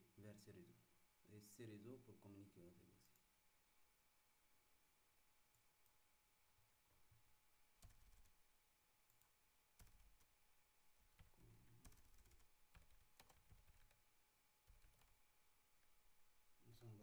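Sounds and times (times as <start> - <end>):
faint keyboard keystrokes: 11.1 - 14.0, 14.7 - 15.2.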